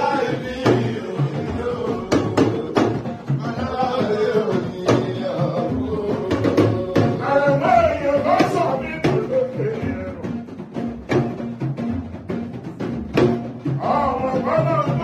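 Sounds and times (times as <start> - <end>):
man singing through microphone: 0.0 - 10.4, 13.8 - 15.0
talking drum strokes: 0.0 - 15.0.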